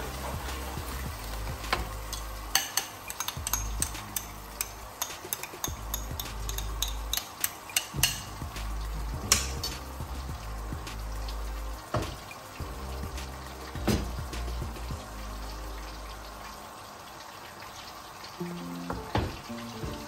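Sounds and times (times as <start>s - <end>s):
sauce sizzling: 0.0s - 20.0s.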